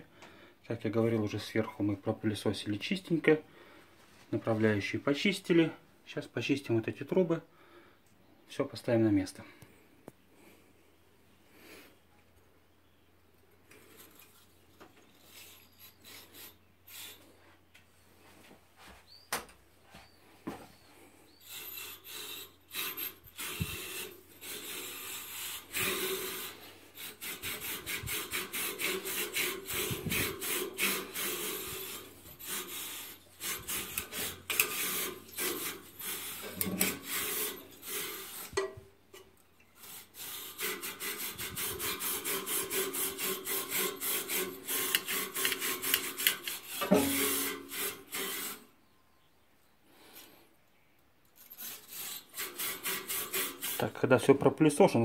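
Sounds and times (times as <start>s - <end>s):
wire brush scraping inside tubes: 13.6s - 17.7s, 21.0s - 48.8s, 51.4s - 55.0s.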